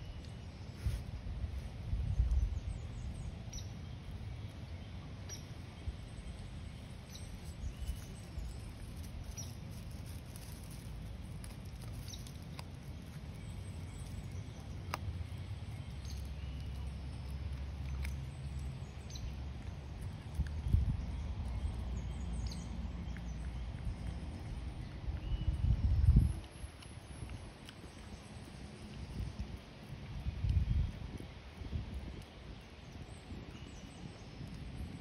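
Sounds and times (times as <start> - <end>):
low steady rumble: 0.0 - 35.0
dog chewing in dry straw: 6.7 - 33.6.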